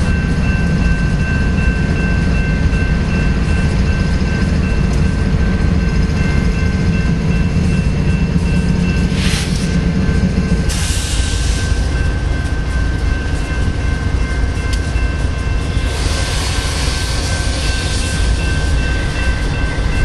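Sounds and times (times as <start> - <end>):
diesel locomotive engine idling: 0.0 - 20.0
air hiss bursts: 9.1 - 9.7, 10.7 - 11.8.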